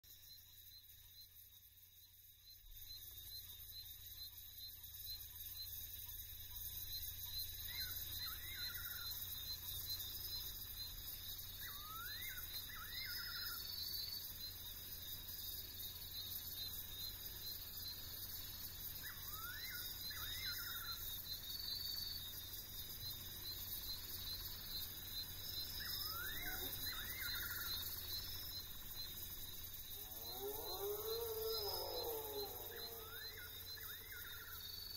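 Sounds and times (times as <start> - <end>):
insect chorus: 0.0 - 34.9
nightjar whistling: 7.6 - 9.2, 11.6 - 14.2, 19.0 - 22.4, 25.3 - 34.9.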